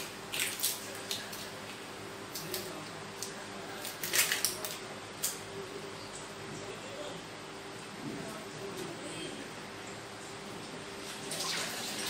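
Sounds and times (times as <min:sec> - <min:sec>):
onion skin crackling: 0:00.0 - 0:05.4.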